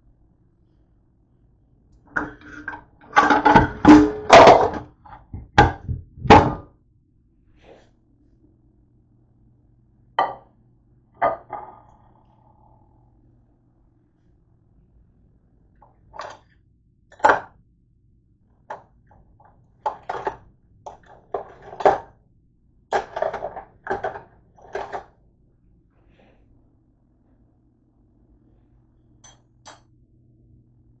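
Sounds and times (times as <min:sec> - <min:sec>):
dishes clattering together: 0:02.2 - 0:06.6, 0:11.2 - 0:11.7, 0:22.9 - 0:25.1
plate knocking on counter: 0:10.2 - 0:10.5, 0:11.2 - 0:11.7.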